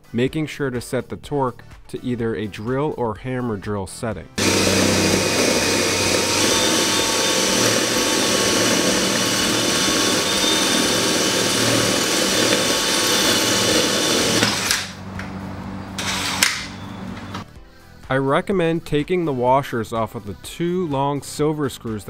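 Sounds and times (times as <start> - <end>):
drill boring into block wall: 4.4 - 15.0, 16.0 - 16.8.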